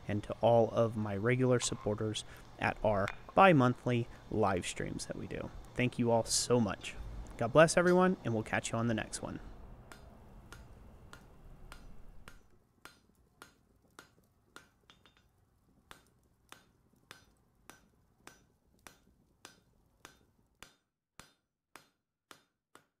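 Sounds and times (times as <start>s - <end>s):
hammer blows on an anvil: 7.8s - 8.2s.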